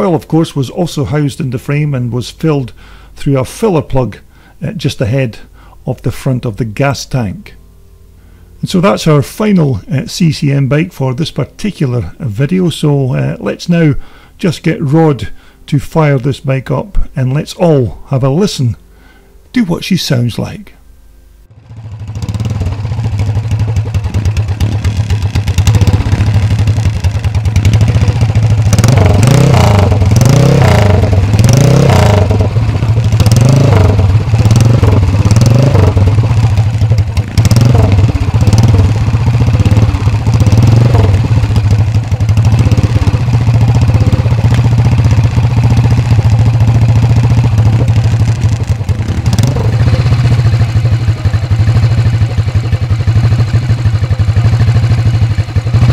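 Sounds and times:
motorcycle engine revving and idling: 21.5s - 55.9s.

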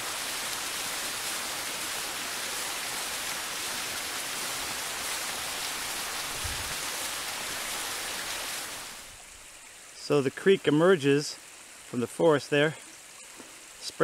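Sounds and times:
water rushing over rock: 0.0s - 9.3s.

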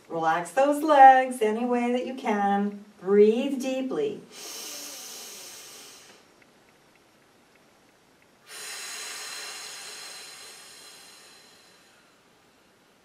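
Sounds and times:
woman breathing deeply: 4.3s - 6.3s, 8.4s - 12.8s.

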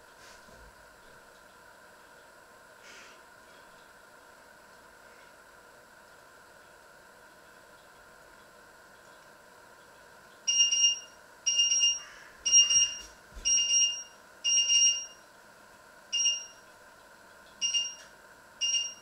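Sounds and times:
shrill electronic beeps: 10.5s - 15.2s.

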